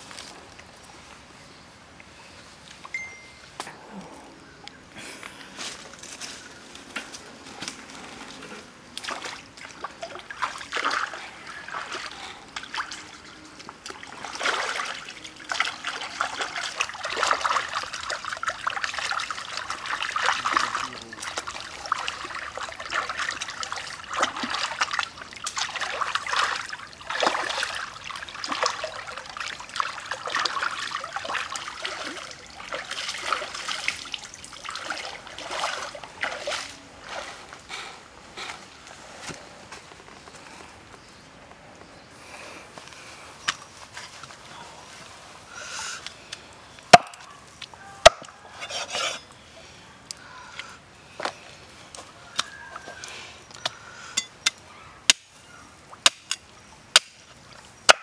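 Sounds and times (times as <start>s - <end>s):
stream water splashing: 8.9s - 37.7s.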